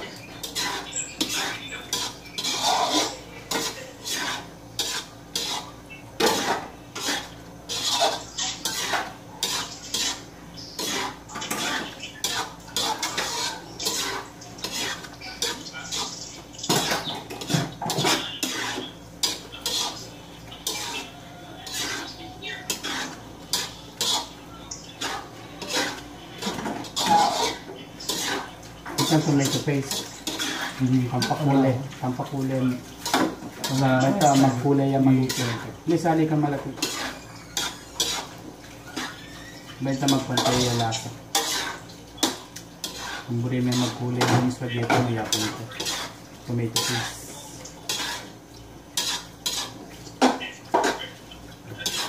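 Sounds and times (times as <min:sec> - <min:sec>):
spatula scraping a wok: 0:00.0 - 0:52.0.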